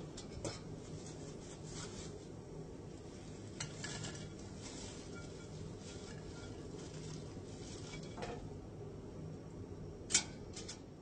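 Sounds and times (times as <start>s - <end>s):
fries sliding into a bowl: 3.0s - 8.5s
fryer basket scraping and rattling: 3.1s - 8.5s.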